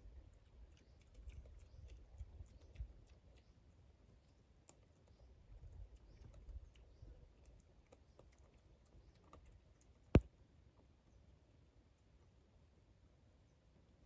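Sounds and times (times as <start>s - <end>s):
piglet chewing and smacking: 0.1s - 10.4s.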